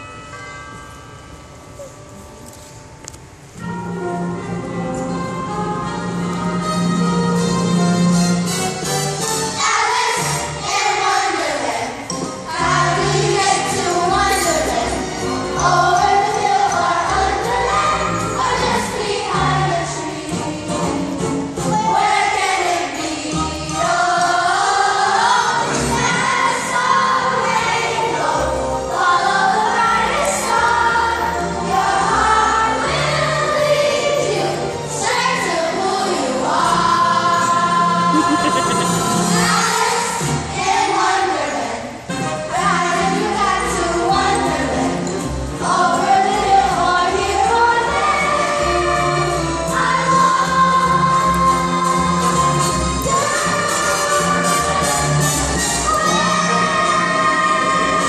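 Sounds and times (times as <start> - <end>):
musical accompaniment: 0.0 - 58.0
children singing in chorus: 21.7 - 41.9, 45.6 - 58.0.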